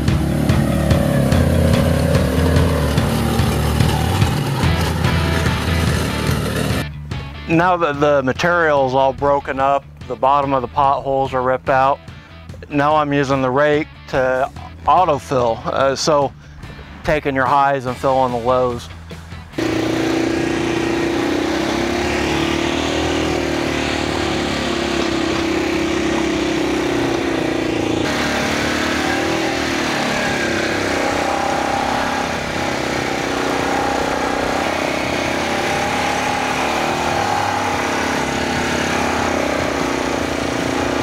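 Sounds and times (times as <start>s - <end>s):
atv engine running: 0.0s - 7.3s, 19.0s - 41.0s.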